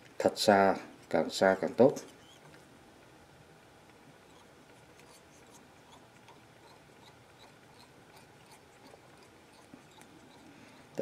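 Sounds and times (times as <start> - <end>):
thread winding ticking and rubbing: 0.9 - 2.7, 3.8 - 11.0.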